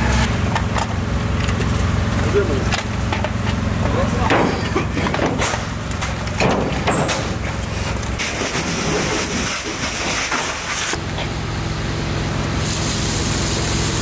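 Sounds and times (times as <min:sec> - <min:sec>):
low engine hum: 0:00.0 - 0:09.5, 0:10.9 - 0:14.0
loud hissing rush: 0:11.7 - 0:14.0.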